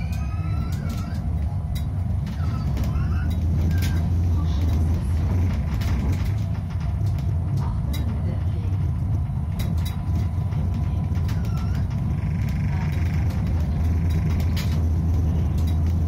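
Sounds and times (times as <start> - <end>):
tram wheels rumbling on rails: 0.0 - 16.0.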